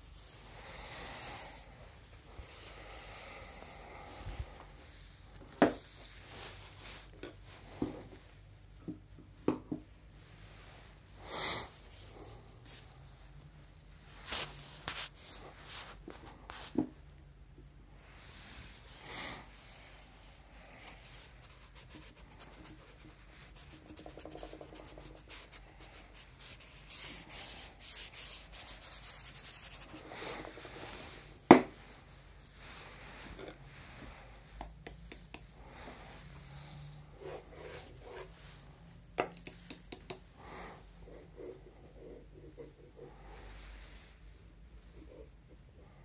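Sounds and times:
paintbrush scrubbing paper: 0:14.1 - 0:16.7, 0:18.1 - 0:44.2.

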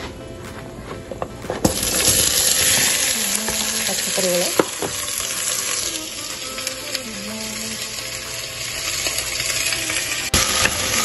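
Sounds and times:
vegetables sizzling in oil: 0:01.6 - 0:11.0.

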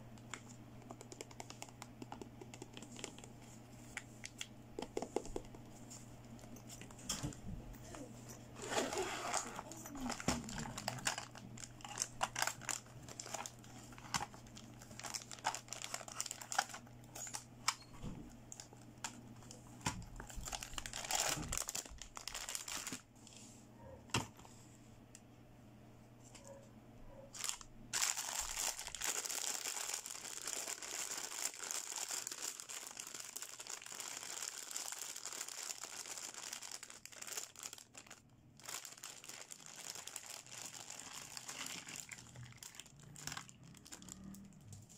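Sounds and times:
plastic bag crinkling: 0:07.9 - 0:17.6, 0:18.4 - 0:23.0, 0:27.4 - 0:44.9.

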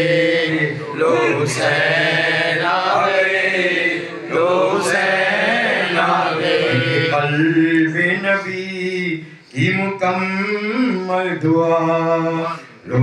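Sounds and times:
man chanting into a microphone: 0:06.4 - 0:13.0
breath: 0:09.2 - 0:09.5.

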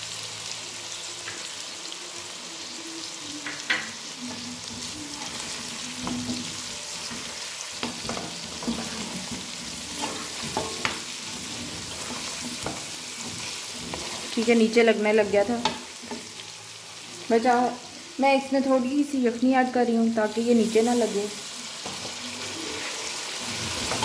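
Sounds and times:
chicken sizzling in a pan: 0:00.0 - 0:24.0
spatula scraping a pan: 0:04.2 - 0:14.7, 0:21.8 - 0:24.0.

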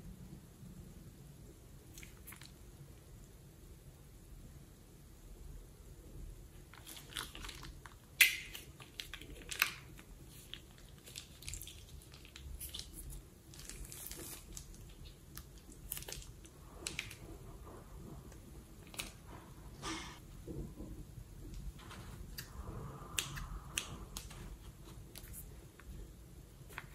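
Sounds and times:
slime squelching and crackling: 0:06.6 - 0:19.5.

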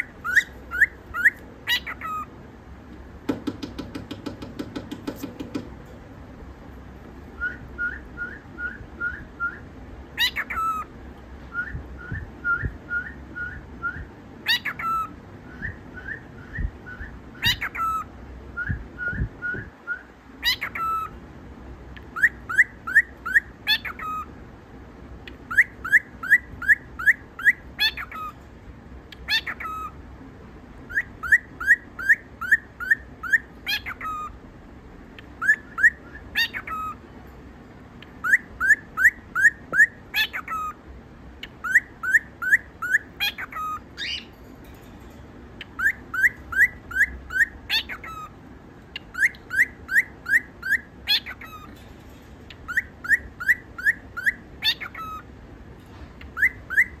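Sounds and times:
bird whistling song: 0:00.0 - 0:02.3, 0:07.2 - 0:21.2, 0:22.0 - 0:24.4, 0:25.3 - 0:28.4, 0:29.1 - 0:30.0, 0:30.8 - 0:34.4, 0:35.2 - 0:37.0, 0:38.0 - 0:40.8, 0:41.4 - 0:44.4, 0:45.6 - 0:51.8, 0:52.5 - 0:55.3, 0:56.2 - 0:57.0.

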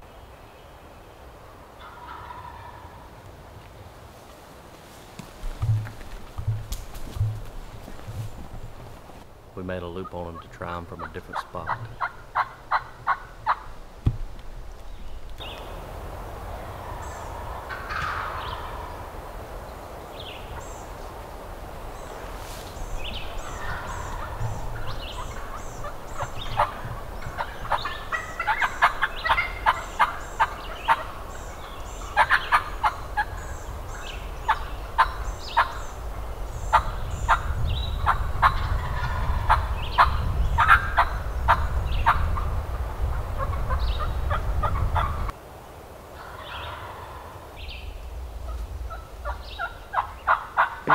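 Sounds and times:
turkeys gobbling: 0:01.8 - 0:03.1, 0:09.9 - 0:13.8, 0:16.6 - 0:19.1, 0:23.0 - 0:36.0, 0:36.6 - 0:42.5, 0:43.3 - 0:45.3, 0:46.2 - 0:47.5, 0:48.4 - 0:50.9
faint songbird chirps: 0:21.9 - 0:38.8.

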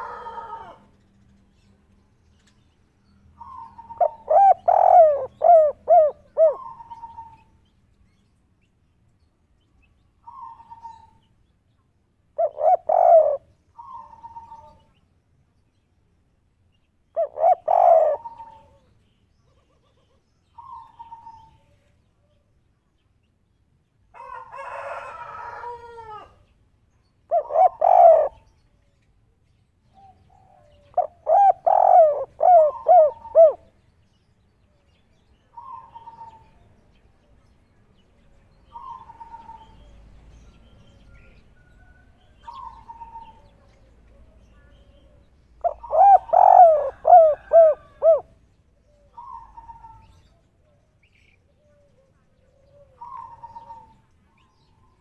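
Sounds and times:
dove cooing: 0:00.0 - 0:00.9, 0:03.4 - 0:07.5, 0:12.4 - 0:14.9, 0:17.1 - 0:21.8, 0:27.3 - 0:28.6, 0:30.0 - 0:33.7, 0:35.5 - 0:36.6, 0:38.7 - 0:39.8, 0:41.9 - 0:50.4, 0:51.5 - 0:54.0.

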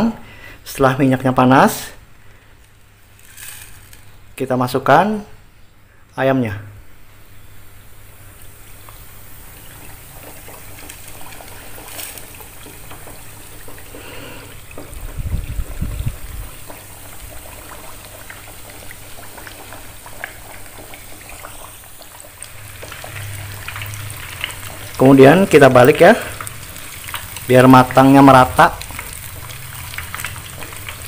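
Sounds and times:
chicken deep-frying in oil: 0:07.4 - 0:31.0.

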